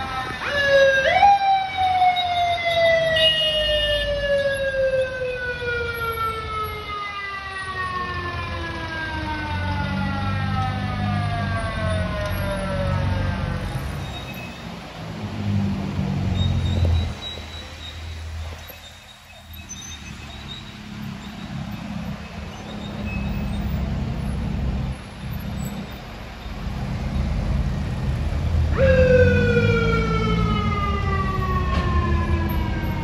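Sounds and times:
mechanical siren wail: 0:00.0 - 0:14.2, 0:28.7 - 0:33.0.

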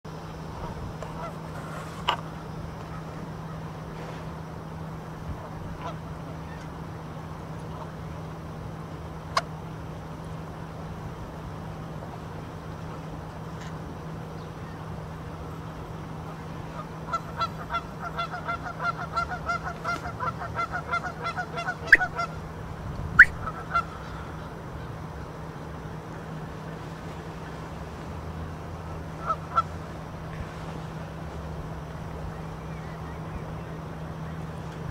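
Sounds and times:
geese honking: 0:00.6 - 0:02.2, 0:05.3 - 0:06.7, 0:16.2 - 0:22.5, 0:23.2 - 0:25.4, 0:28.8 - 0:30.1.

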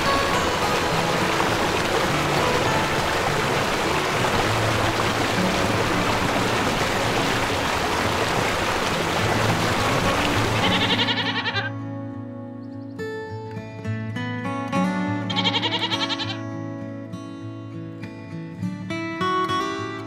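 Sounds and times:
rushing water: 0:00.0 - 0:11.7
background music: 0:00.0 - 0:20.0.

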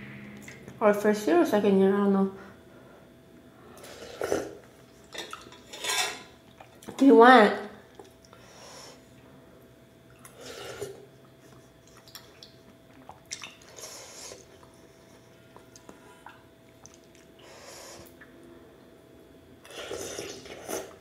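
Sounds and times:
person chewing noodles: 0:10.1 - 0:18.3, 0:19.6 - 0:21.0.

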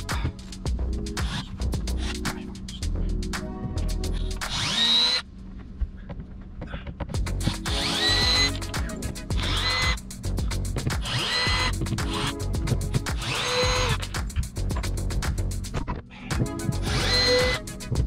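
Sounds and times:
background music with steady beat: 0:00.0 - 0:05.1, 0:06.9 - 0:18.0
cordless drill motor whining: 0:04.5 - 0:05.2, 0:07.4 - 0:10.0, 0:11.0 - 0:14.0, 0:16.6 - 0:17.7.

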